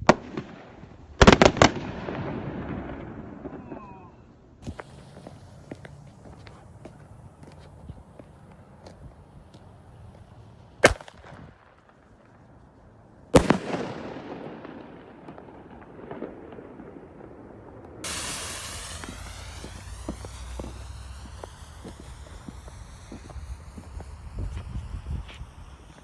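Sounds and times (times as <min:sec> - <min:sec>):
firework mortar bang: 0:04.6 - 0:09.6, 0:18.0 - 0:26.0
fuse hissing and spitting sparks: 0:04.6 - 0:10.8, 0:18.0 - 0:26.0
firework shell bursting boom: 0:18.0 - 0:26.0.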